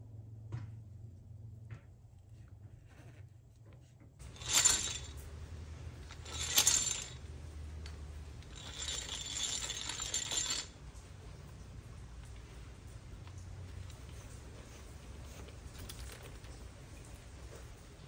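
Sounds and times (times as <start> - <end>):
hand drill gears whirring: 4.2 - 5.2, 6.0 - 7.3, 8.4 - 10.8.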